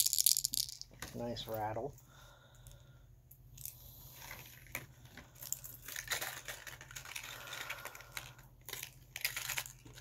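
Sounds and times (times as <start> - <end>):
plastic packaging crinkling: 4.1 - 10.0.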